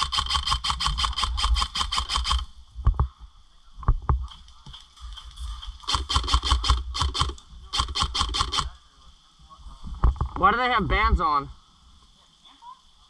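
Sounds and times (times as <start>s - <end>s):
airsoft rifle full auto fire: 0.0s - 2.5s, 5.8s - 8.7s.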